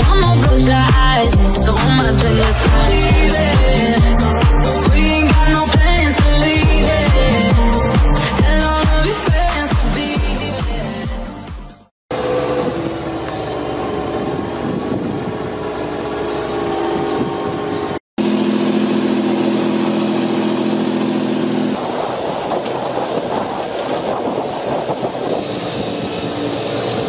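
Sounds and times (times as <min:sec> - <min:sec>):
strong steady hum: 0:00.0 - 0:10.0, 0:12.1 - 0:27.0
tractor engine running under load: 0:12.1 - 0:27.0.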